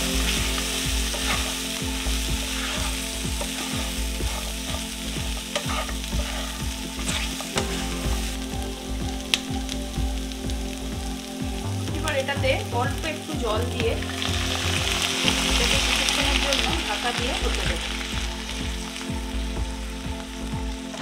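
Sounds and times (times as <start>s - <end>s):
wooden spatula scraping a pan: 0.0s - 8.4s
vegetables sizzling in oil: 0.0s - 21.0s.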